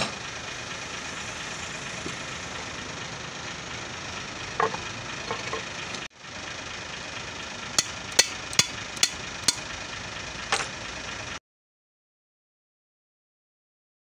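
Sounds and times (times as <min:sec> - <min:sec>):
workshop background noise: 0:00.0 - 0:06.1, 0:07.3 - 0:09.7, 0:10.5 - 0:10.8
hand tool clinking on metal: 0:07.8 - 0:09.6.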